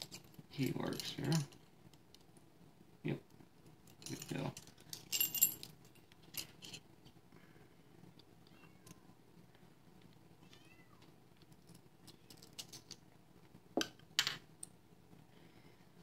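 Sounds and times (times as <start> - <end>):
padlock parts clicking: 12.3 - 13.0.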